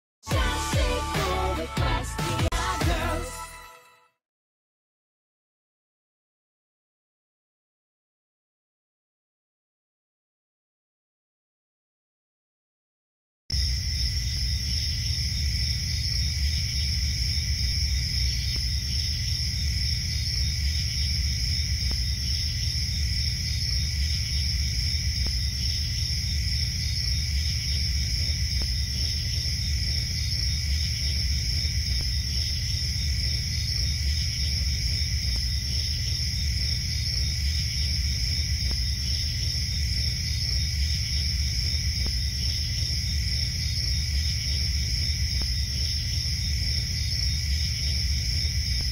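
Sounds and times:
crickets chirping: 13.5 - 48.9.

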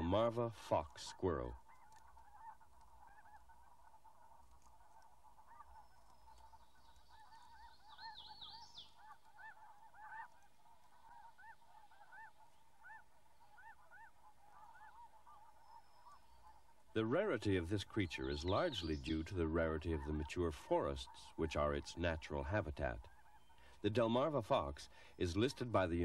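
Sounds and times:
geese honking: 0.0 - 26.0.

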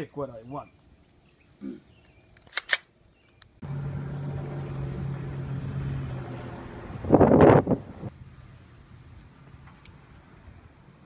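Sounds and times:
sharp clicks: 2.4 - 3.6
helicopter droning: 3.6 - 8.1.

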